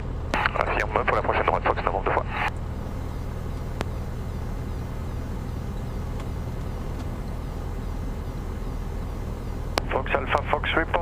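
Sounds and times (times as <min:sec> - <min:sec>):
light aircraft engine droning: 0:00.0 - 0:11.0.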